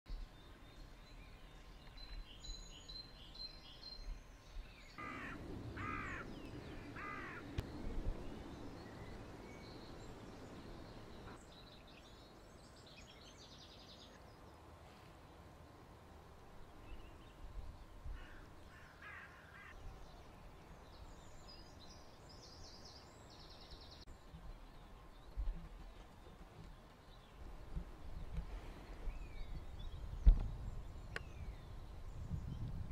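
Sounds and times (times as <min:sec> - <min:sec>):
small birds chirping: 0:00.1 - 0:14.8, 0:16.8 - 0:32.9
loud bird calls: 0:04.9 - 0:11.5
low background rumble: 0:05.0 - 0:11.5.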